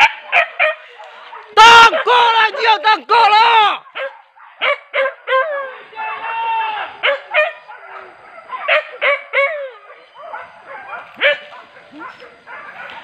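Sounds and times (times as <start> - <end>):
dogs yelping and baying: 3.8 - 5.9, 7.0 - 13.0.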